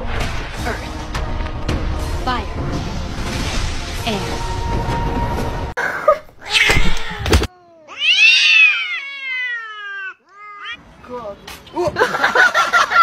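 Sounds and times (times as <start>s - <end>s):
cat yowling: 6.4s - 10.8s.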